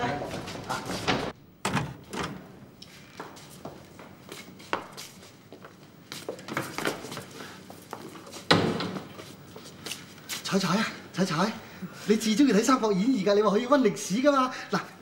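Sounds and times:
footsteps in a room: 0.0s - 1.4s, 2.7s - 10.9s.

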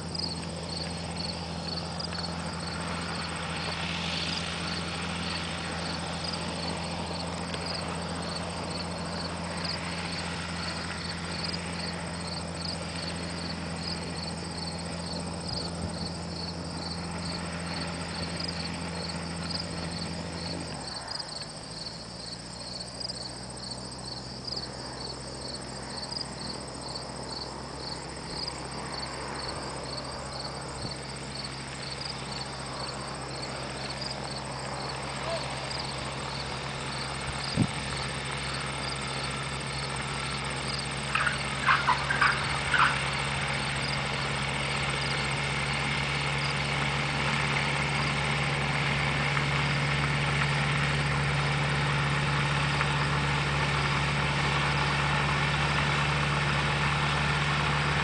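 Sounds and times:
insects chirping: 0.0s - 55.5s
distant gyroplane engine hum: 0.0s - 58.0s.

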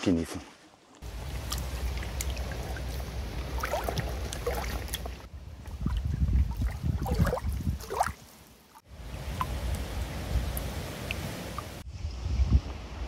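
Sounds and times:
wind rumbling on microphone: 1.0s - 8.3s, 8.9s - 13.0s.

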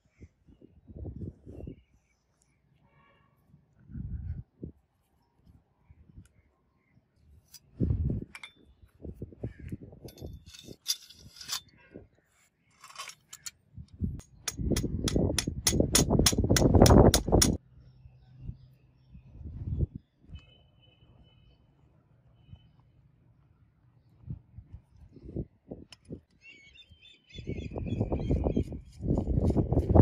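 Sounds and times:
metal parts knocking and rubbing: 8.3s - 8.6s, 10.1s - 11.8s, 12.7s - 13.6s.

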